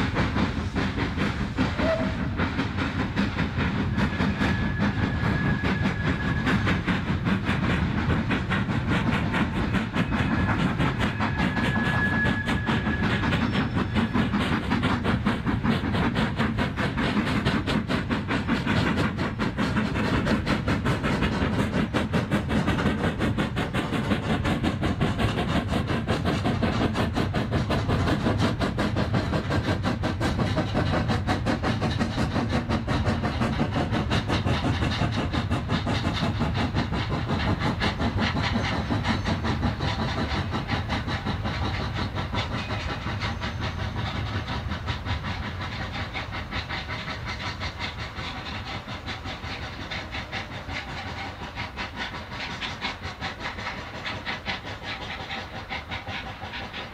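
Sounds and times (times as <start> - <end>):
steam locomotive exhaust beats: 0.0 - 56.9
train rumble: 0.0 - 56.9
steam whistle: 1.8 - 2.3.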